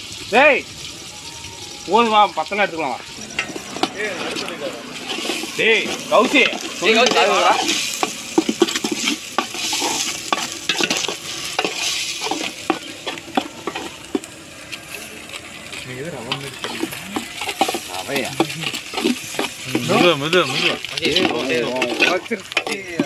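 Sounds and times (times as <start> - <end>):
frying sizzling: 0.0 - 23.0
ladle scraping metal pot: 3.0 - 23.0.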